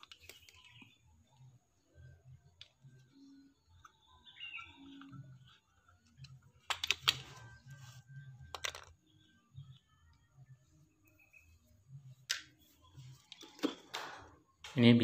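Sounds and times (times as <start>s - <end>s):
bird chirp: 0.0s - 13.3s
plastic parts clicking and clattering: 4.8s - 7.6s, 8.4s - 9.0s.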